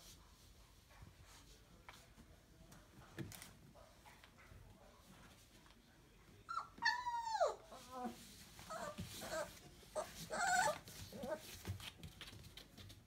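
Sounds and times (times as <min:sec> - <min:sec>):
puppies whimpering: 0:06.5 - 0:08.0, 0:08.7 - 0:11.4
puppy yip: 0:08.7 - 0:10.8.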